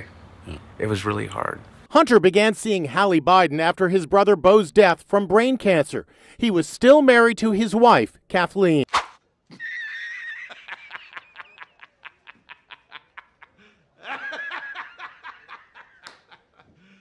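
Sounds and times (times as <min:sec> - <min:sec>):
man laughing: 0:09.5 - 0:17.0.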